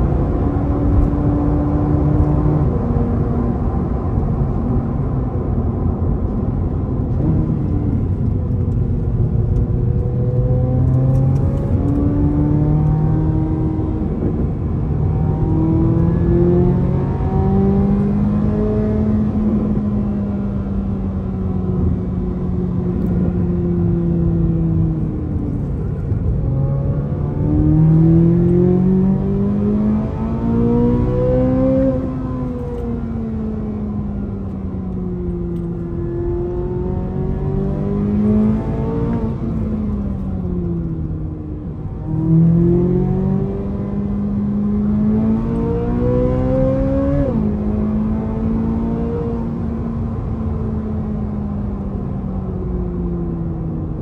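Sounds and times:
car engine revving: 0.0 - 52.2
road rumble: 0.0 - 54.0.

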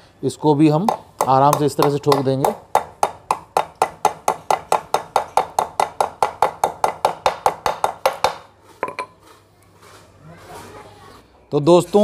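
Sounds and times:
hammer tapping metal bearing: 0.8 - 9.1.

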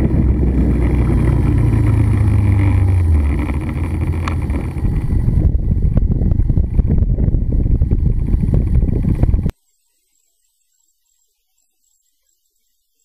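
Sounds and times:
vehicle rumble: 0.0 - 9.5
wind buffeting microphone: 0.0 - 9.5.

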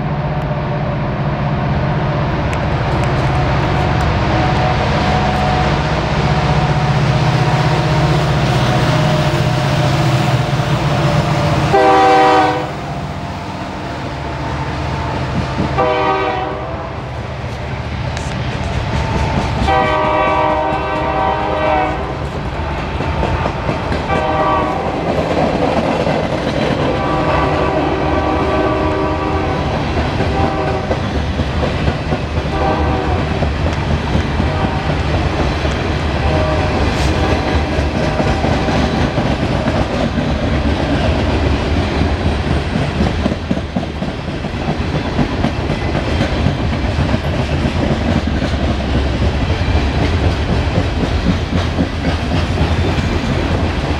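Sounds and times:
freight cars rumbling on rails: 0.0 - 53.9
train horn blasts: 3.2 - 17.2, 19.0 - 25.1, 26.9 - 31.1, 32.4 - 33.4, 34.4 - 35.2, 36.1 - 39.2
wheels clicking over rail joints: 36.7 - 53.9.

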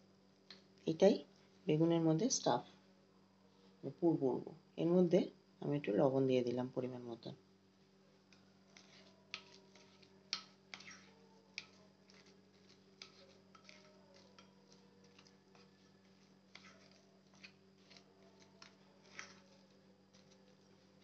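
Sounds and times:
metal spoon scraping ceramic bowl: 8.7 - 21.0.

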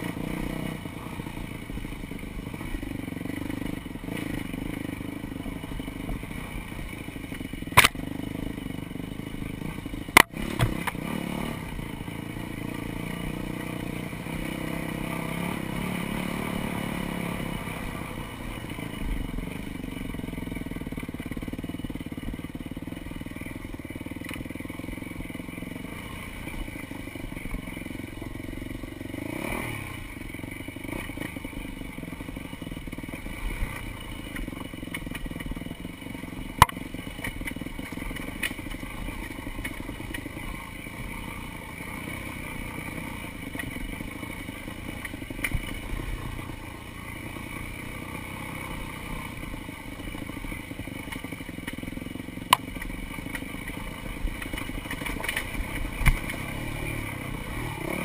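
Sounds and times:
dirt bike engine running: 0.0 - 58.0
bike rattling over ground: 30.7 - 58.0.

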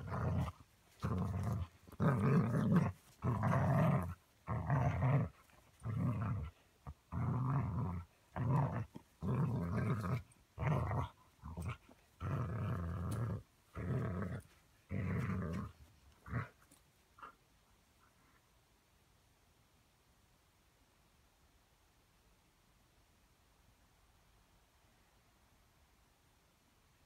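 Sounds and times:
dog play growling: 0.0 - 17.4.

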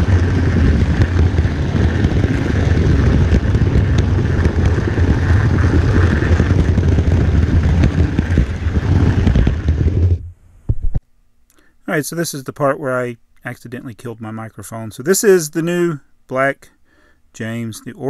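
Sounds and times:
model train rumbling on track: 0.0 - 10.2.

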